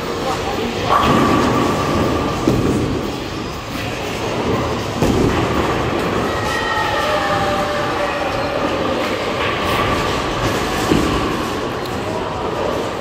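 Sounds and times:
bowling balls rolling: 0.7 - 7.4.

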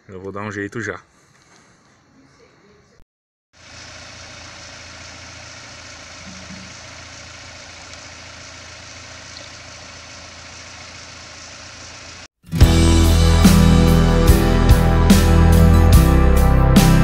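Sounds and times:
engine idling: 3.6 - 12.3.

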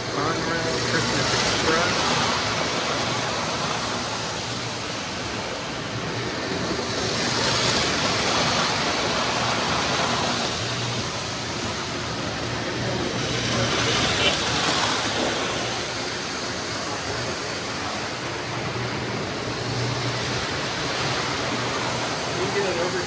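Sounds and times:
toy train wheels rumbling on track: 0.0 - 23.0.

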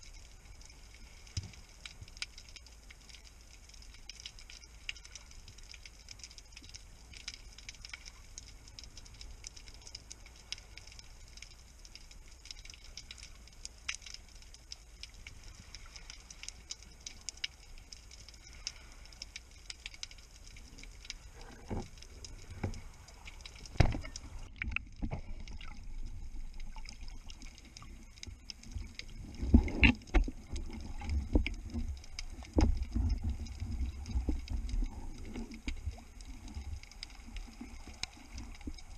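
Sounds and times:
underwater crackle of clicks: 0.0 - 38.9
bubbling rushing water: 21.2 - 38.9.

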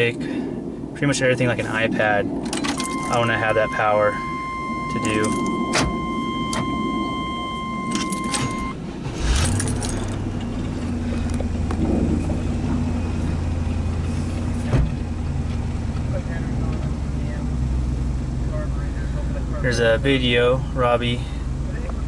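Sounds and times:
car engine cranking and idling: 0.8 - 22.0
electronic tone: 2.8 - 8.8
keys jangling: 9.2 - 10.3.

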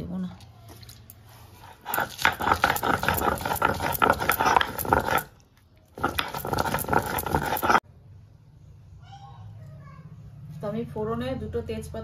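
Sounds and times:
stone grinding on stone: 1.6 - 7.8.

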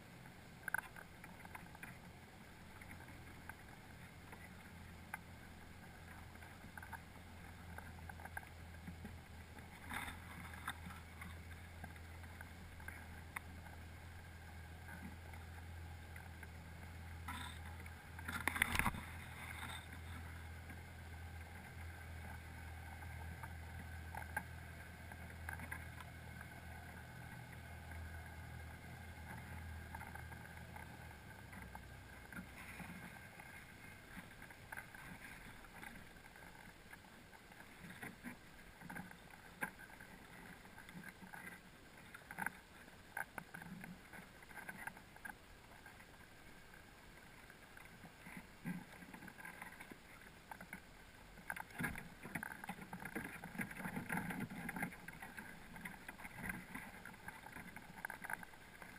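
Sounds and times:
low underwater hum: 0.0 - 58.9
underwater clicks and taps: 17.2 - 20.8.

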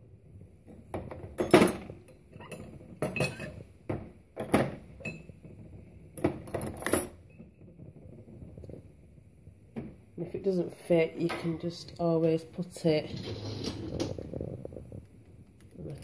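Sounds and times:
cutlery clattering into basket: 3.0 - 3.6.

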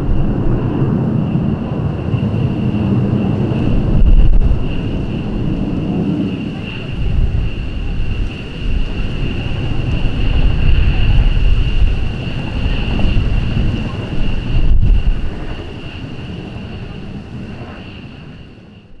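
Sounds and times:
jet engines whining: 0.0 - 19.0
wind rumble on microphone: 0.0 - 19.0.

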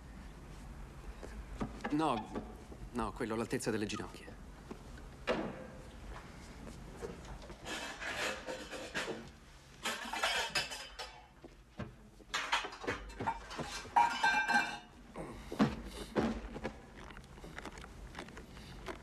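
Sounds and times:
pots and pans clattering: 9.8 - 11.4, 12.3 - 14.9.

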